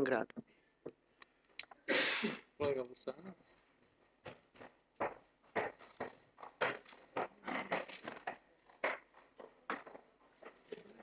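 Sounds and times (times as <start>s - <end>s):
footsteps on parquet floor: 4.0s - 11.0s.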